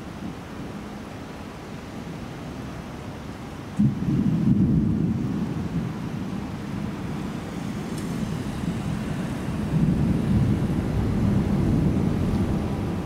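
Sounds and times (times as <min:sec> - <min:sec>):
rolling thunder: 0:03.8 - 0:13.0.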